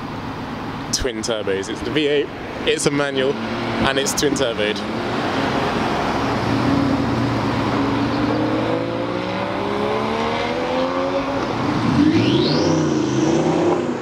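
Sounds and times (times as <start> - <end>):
cars driving past: 0.0 - 14.0
car engine accelerating: 3.0 - 14.0.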